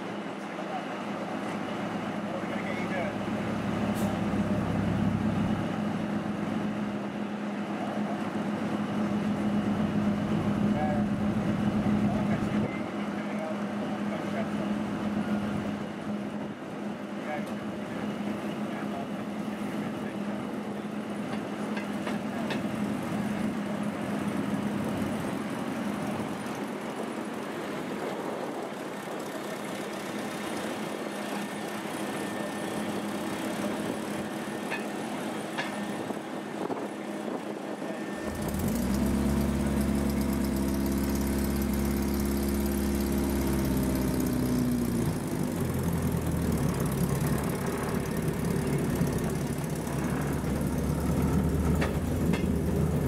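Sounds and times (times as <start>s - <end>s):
small engine running: 38.0s - 53.0s.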